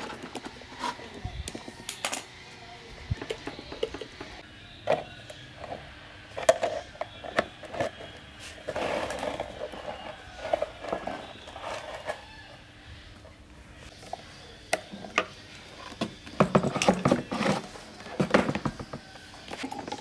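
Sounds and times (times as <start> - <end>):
plastic parts clicking and knocking: 3.1 - 5.1, 16.0 - 20.0
plastic scraping and rubbing: 5.6 - 12.5, 15.8 - 20.0.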